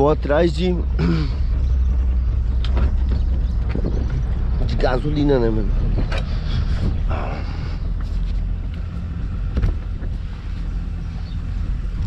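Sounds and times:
motorboat engine rumbling: 0:00.0 - 0:12.0
wind on microphone: 0:03.3 - 0:04.8, 0:05.8 - 0:07.4.

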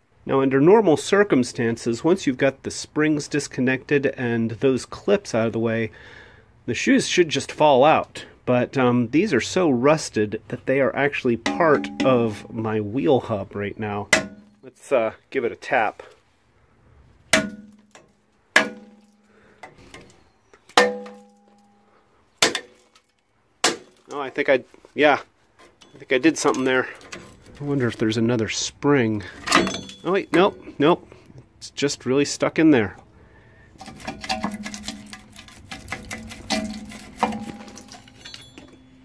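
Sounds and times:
ringing metal taps: 0:11.4 - 0:12.6, 0:14.1 - 0:14.7, 0:29.5 - 0:30.6, 0:36.5 - 0:39.0
metal clicks and scrapes: 0:25.6 - 0:28.0, 0:33.8 - 0:38.8
sharp ringing metal clinks: 0:37.3 - 0:39.0.

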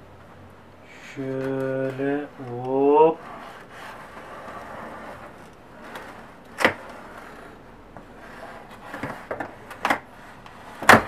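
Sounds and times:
blade scraping cardboard: 0:03.1 - 0:11.0.

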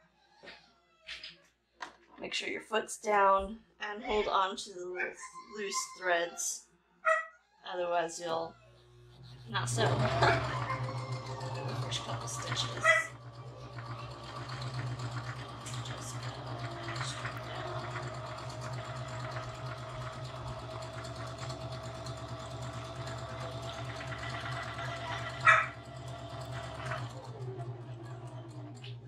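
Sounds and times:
sewing machine running: 0:08.6 - 0:29.0.

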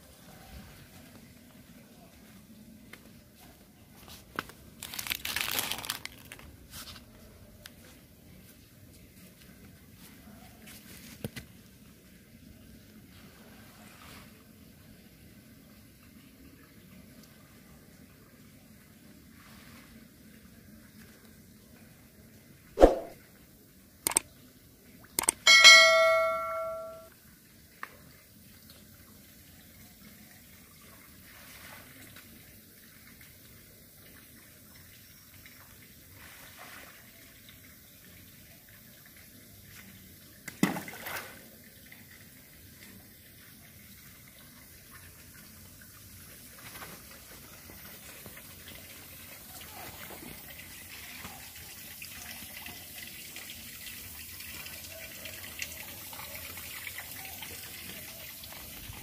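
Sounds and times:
pool water trickling and lapping: 0:00.0 - 0:59.0
bell-like chime: 0:25.4 - 0:27.1.

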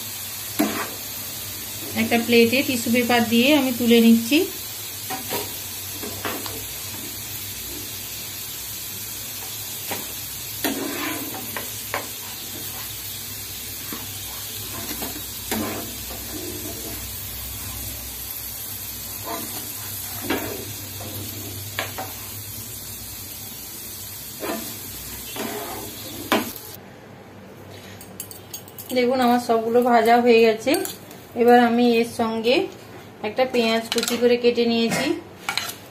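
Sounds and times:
corn deep-frying in hot oil: 0:00.0 - 0:26.8.

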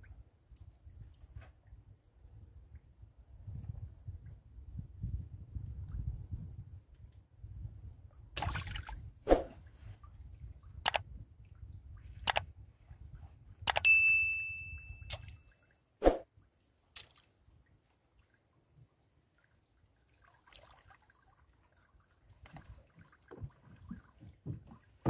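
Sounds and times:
bell-like chime: 0:13.8 - 0:15.5
knocks against wooden boat: 0:24.3 - 0:25.0.

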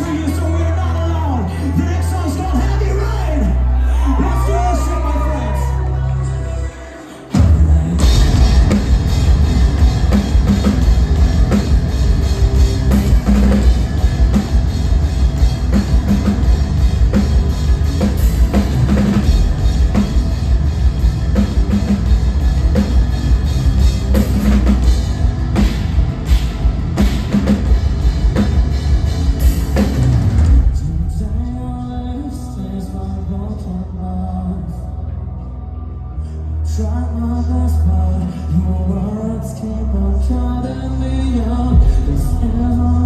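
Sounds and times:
live metal band playing: 0:00.0 - 0:43.0
heavy bass drum: 0:07.4 - 0:32.0, 0:41.7 - 0:43.0.

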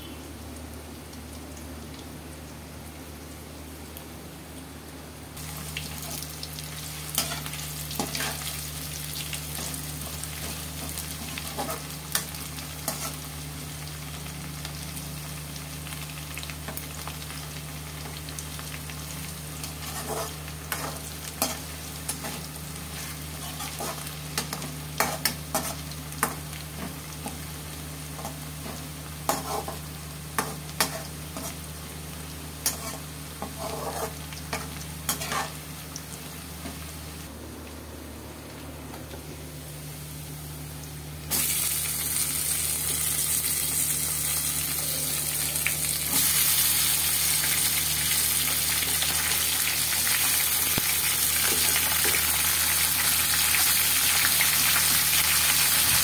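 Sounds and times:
onions sizzling in oil: 0:00.0 - 0:37.3, 0:39.6 - 0:56.0
metal spatula scraping pan: 0:19.8 - 0:21.6, 0:29.3 - 0:29.8, 0:32.7 - 0:35.6.

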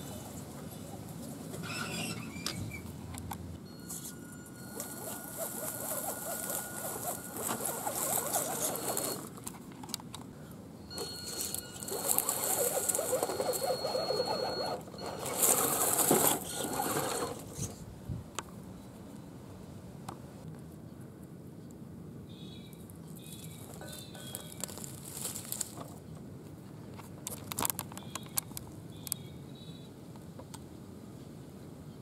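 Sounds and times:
electric motor whine: 0:04.6 - 0:09.2, 0:11.4 - 0:17.4
tyres crunching over leaves: 0:04.7 - 0:09.4, 0:11.0 - 0:13.7, 0:23.1 - 0:26.0.

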